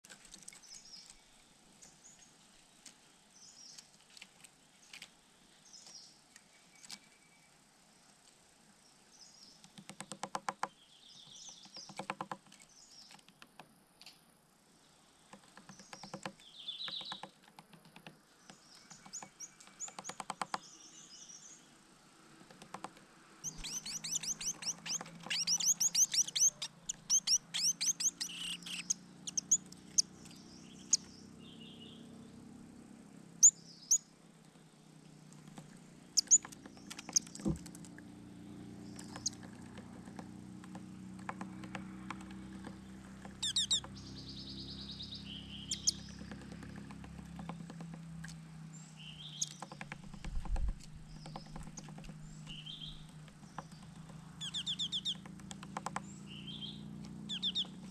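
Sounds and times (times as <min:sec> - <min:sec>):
bird tapping with bill: 0:09.6 - 0:13.7, 0:15.3 - 0:20.8, 0:22.4 - 0:31.1, 0:35.3 - 0:37.9, 0:38.8 - 0:48.4, 0:49.0 - 0:57.9
high bird chirps: 0:23.4 - 0:32.0, 0:36.1 - 0:37.4, 0:38.8 - 0:39.5, 0:43.3 - 0:46.4, 0:49.0 - 0:57.9.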